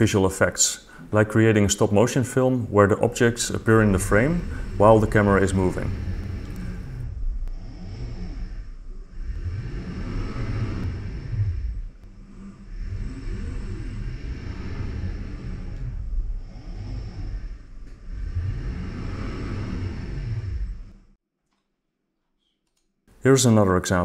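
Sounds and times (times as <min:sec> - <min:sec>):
robotic arm motors whirring: 0:03.2 - 0:21.2.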